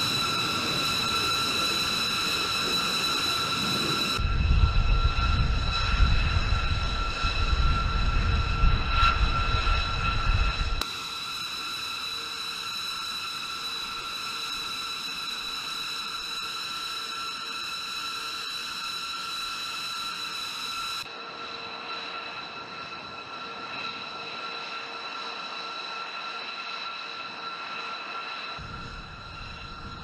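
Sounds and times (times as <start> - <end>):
jet engines whining: 0.0 - 30.0
deep gusty rumble: 3.5 - 10.8, 28.6 - 30.0.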